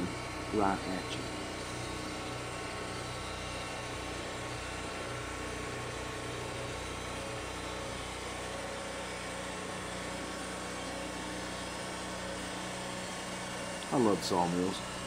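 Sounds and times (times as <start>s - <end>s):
band sawmill running: 0.0s - 15.0s.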